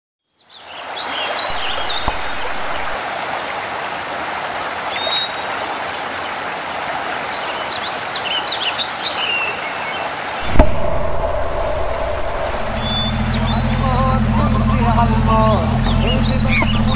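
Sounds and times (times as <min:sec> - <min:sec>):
birds chirping: 0:00.4 - 0:03.0, 0:07.3 - 0:16.9
stream running over rocks: 0:00.5 - 0:13.6
steady low hum: 0:01.5 - 0:03.0, 0:10.4 - 0:16.9.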